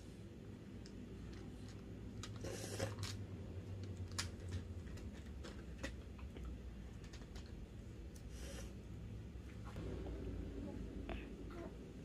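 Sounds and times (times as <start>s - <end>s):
low hum: 3.0s - 12.0s.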